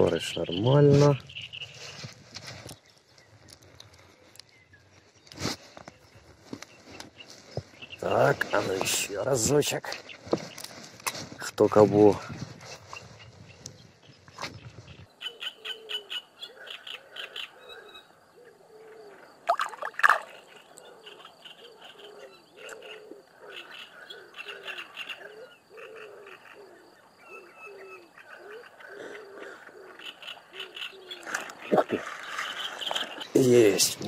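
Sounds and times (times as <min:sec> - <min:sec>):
frogs croaking: 0:00.0 - 0:05.0, 0:05.9 - 0:10.8, 0:12.9 - 0:34.0
sharp frog calls: 0:15.1 - 0:34.0.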